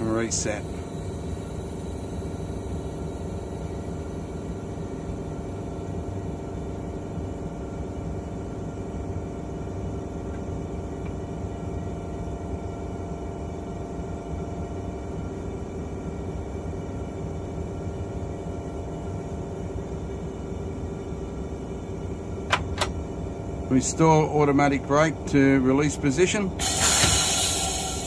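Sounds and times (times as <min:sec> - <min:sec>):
diesel engine idling: 0:20.5 - 0:28.0.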